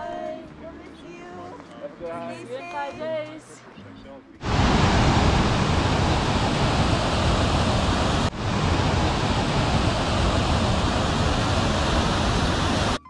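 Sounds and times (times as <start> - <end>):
loud steady rushing noise: 4.4 - 13.0.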